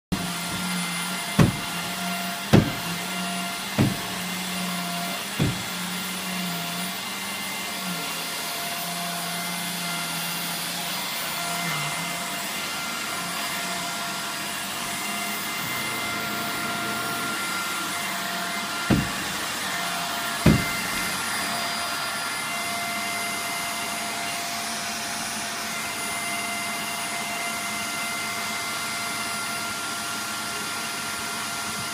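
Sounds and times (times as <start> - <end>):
vacuum cleaner running: 0.0 - 31.9
sharp knocks: 1.4 - 1.8, 2.5 - 3.0, 3.7 - 4.2, 5.4 - 5.7, 18.8 - 19.4, 20.4 - 21.1.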